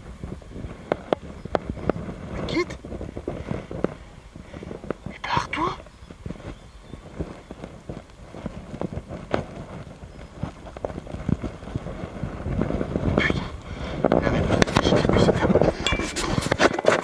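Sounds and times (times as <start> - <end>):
clothing and gear rustling: 0.0 - 17.0.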